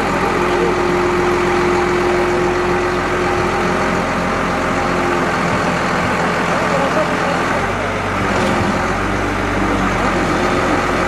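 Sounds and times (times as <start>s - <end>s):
crane truck engine running: 0.0s - 11.0s.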